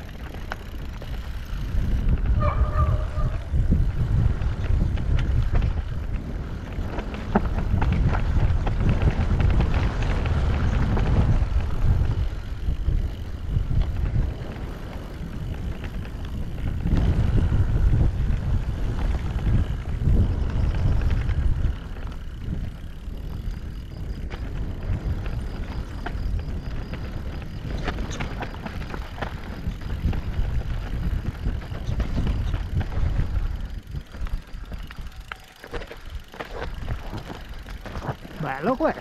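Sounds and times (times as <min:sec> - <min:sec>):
bike rattling: 0:00.0 - 0:39.0
wind buffeting microphone: 0:00.0 - 0:39.0
tyres crunching over stones: 0:24.3 - 0:39.0.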